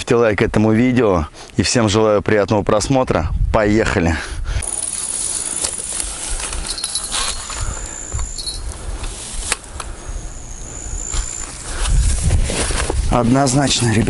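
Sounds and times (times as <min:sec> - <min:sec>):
net rustling through grass: 0:04.6 - 0:09.8, 0:10.7 - 0:14.0
high steady whistles: 0:04.6 - 0:12.2.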